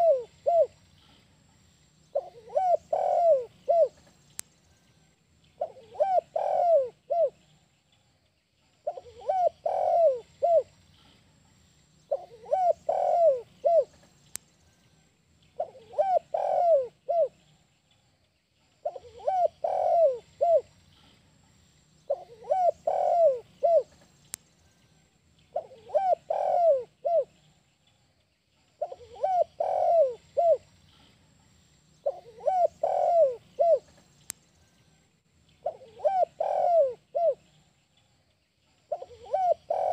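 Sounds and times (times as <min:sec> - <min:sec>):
dove cooing: 0:00.0 - 0:00.8, 0:02.1 - 0:04.1, 0:05.6 - 0:07.4, 0:08.8 - 0:10.7, 0:12.1 - 0:14.0, 0:15.6 - 0:17.4, 0:18.8 - 0:20.7, 0:22.1 - 0:24.0, 0:25.5 - 0:27.4, 0:28.8 - 0:30.7, 0:32.0 - 0:34.0, 0:35.6 - 0:37.5, 0:38.9 - 0:39.9.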